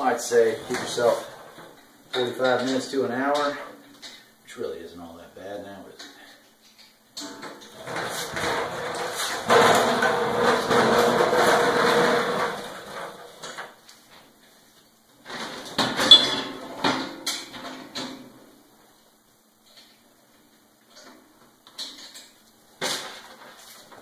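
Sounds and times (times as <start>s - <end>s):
stool casters rumbling on concrete: 0.0s - 3.8s, 7.6s - 14.2s
metal clanks and rattles: 7.2s - 13.8s.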